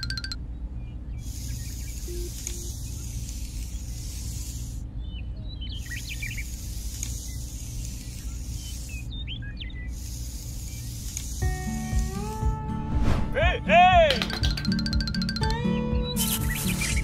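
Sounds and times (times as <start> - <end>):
birds chirping: 0.0 - 12.7
steady low hum: 0.0 - 14.0.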